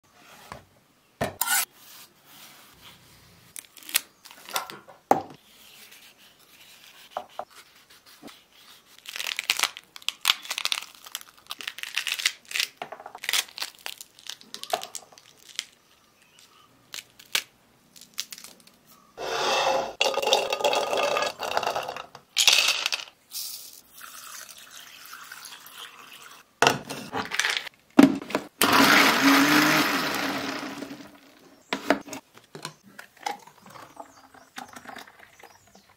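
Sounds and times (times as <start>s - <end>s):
pomegranate rind cracking and tearing: 9.0s - 15.8s.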